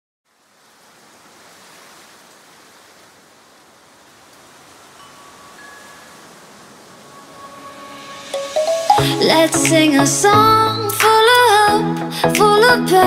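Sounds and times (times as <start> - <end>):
soft airy noise swell: 4.8 - 10.4
faint chime-like tones: 4.9 - 9.2.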